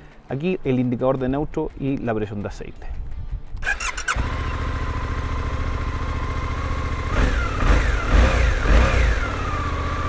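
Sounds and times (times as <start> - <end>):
motorcycle engine idling and revving: 3.6 - 10.0.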